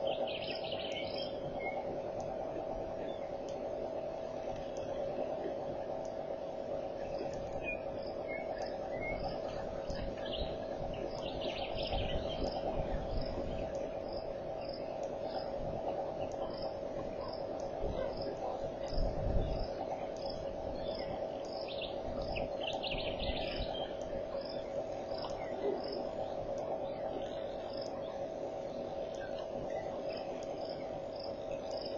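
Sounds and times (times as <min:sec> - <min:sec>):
steady hum: 0:00.0 - 0:31.9
bird calls: 0:07.5 - 0:12.6, 0:20.8 - 0:25.7.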